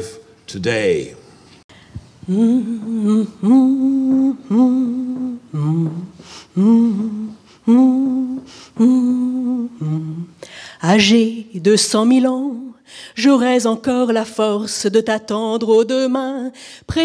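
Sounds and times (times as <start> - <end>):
woman humming: 2.2 - 10.4.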